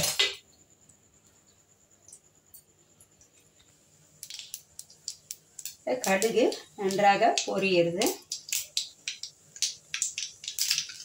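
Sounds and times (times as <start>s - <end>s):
seeds popping in hot oil: 0.0s - 0.4s, 3.2s - 11.0s.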